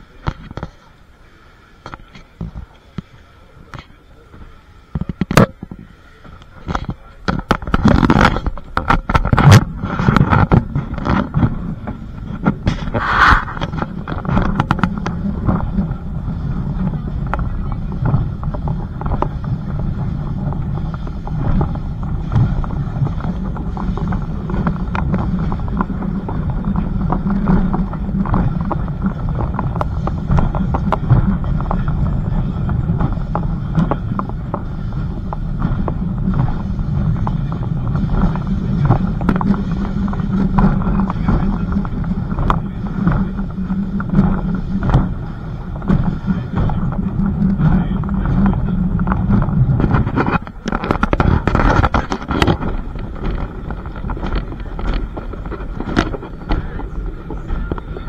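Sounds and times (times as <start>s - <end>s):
wind on microphone: 1.8s - 58.0s
train rumbling: 6.2s - 58.0s
clicks and knocks from running gear: 17.2s - 58.0s.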